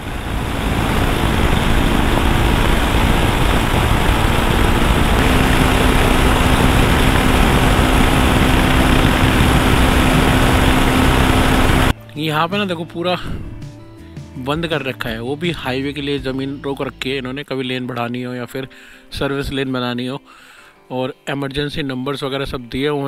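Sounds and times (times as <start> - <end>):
motorcycle engine drone: 0.0 - 11.9
wind rush on microphone: 0.0 - 11.9.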